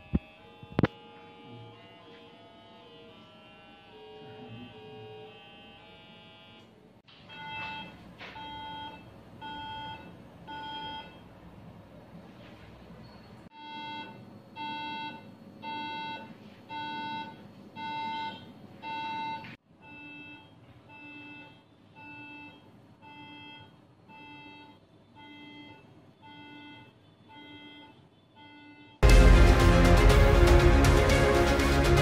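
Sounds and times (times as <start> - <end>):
buzzy generator beeps: 7.3 - 11.3, 13.0 - 29.1.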